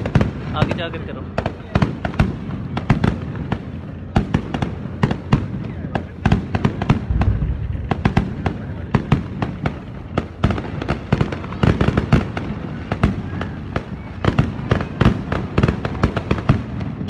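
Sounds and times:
fireworks bangs and crackles: 0.0 - 17.0
low rumble: 7.0 - 8.9.

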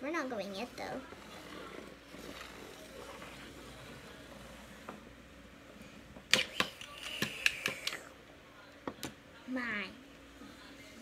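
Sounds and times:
plastic toys clicking on wood: 6.3 - 8.0.

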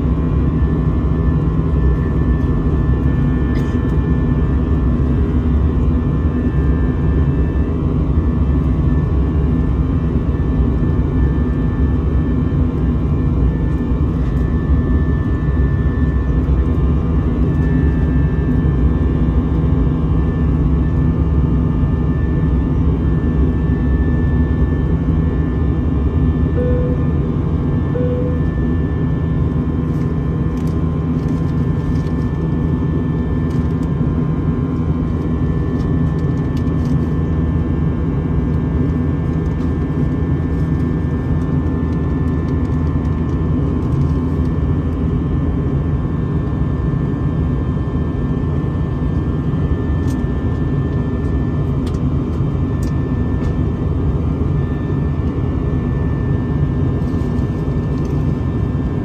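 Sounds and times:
jet engine drone in cabin: 0.0 - 59.0
faint whining tones: 26.4 - 30.0.

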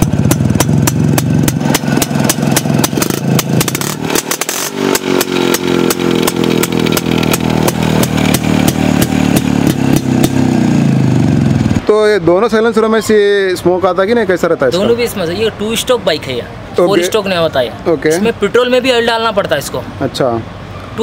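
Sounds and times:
two-stroke motorcycle engine: 0.0 - 11.9.

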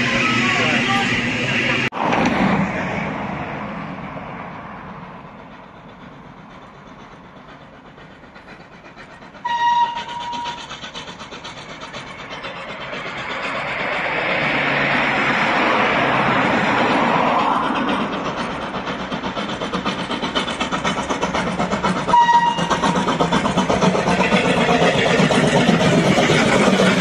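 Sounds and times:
steam locomotive exhaust chuffing: 0.0 - 27.0
steam locomotive whistle: 9.4 - 10.7, 22.1 - 22.9.

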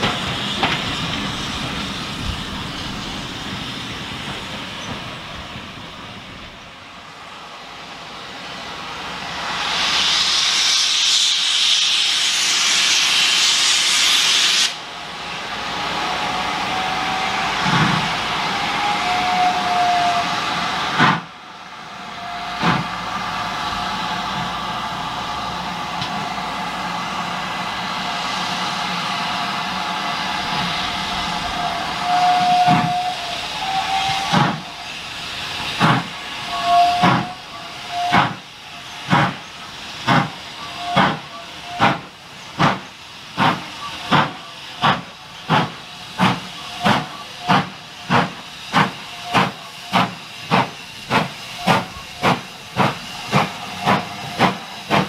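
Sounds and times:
steam hissing: 0.0 - 55.0
locomotive whistle toots: 16.2 - 20.6, 30.9 - 35.0, 36.3 - 39.0, 40.5 - 42.0, 49.0 - 50.2.

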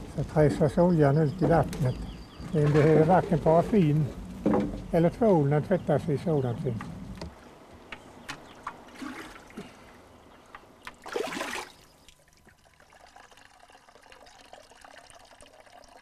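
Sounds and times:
water splashing and trickling: 8.4 - 16.0
rush of water: 10.9 - 11.8.

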